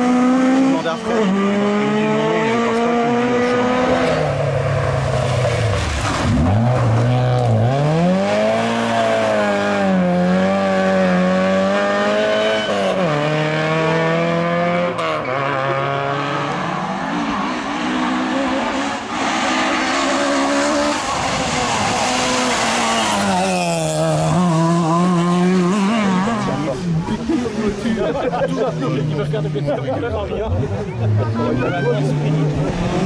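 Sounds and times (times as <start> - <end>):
rally car engine revving: 0.0 - 33.0.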